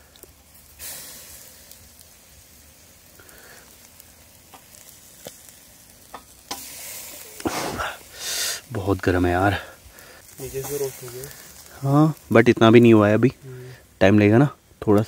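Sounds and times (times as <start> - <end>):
chicken sizzling on a grill: 0.0 - 15.0
sharp pops: 4.4 - 8.0.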